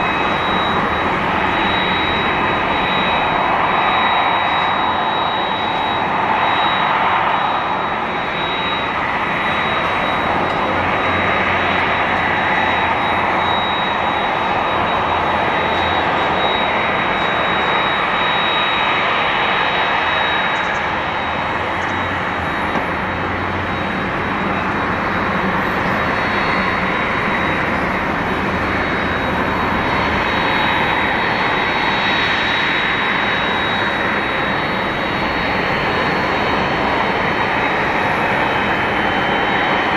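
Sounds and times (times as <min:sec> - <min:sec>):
high jet engine whine: 0:00.0 - 0:39.9
jet engines roaring: 0:00.0 - 0:39.9.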